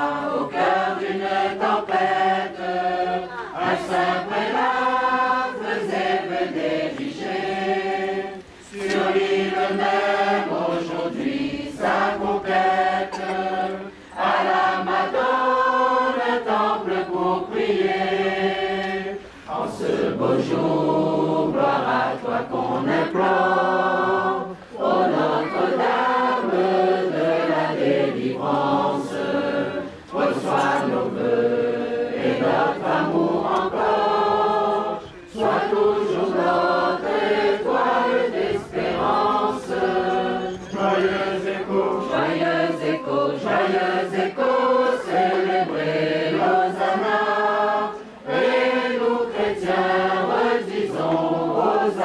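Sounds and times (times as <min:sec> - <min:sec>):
choir singing a hymn: 0:00.0 - 0:52.0.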